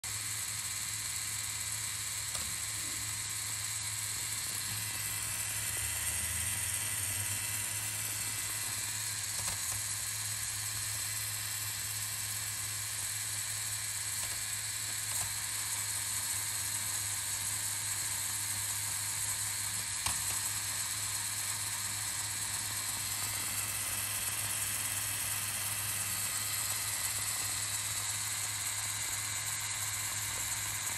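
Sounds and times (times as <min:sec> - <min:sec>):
toy motor whirring: 0:00.0 - 0:30.9.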